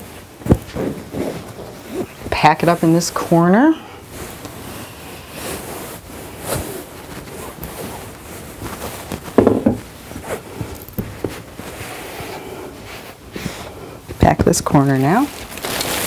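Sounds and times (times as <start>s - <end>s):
rustling of fabric and stuffing: 0.0s - 16.0s
pillow thump: 9.0s - 9.9s
soft knocks: 9.4s - 9.9s.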